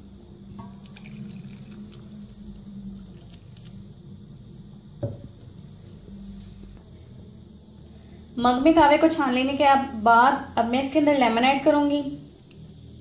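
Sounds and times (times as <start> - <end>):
cricket chirping: 0.0 - 13.0
knock: 5.0 - 5.3.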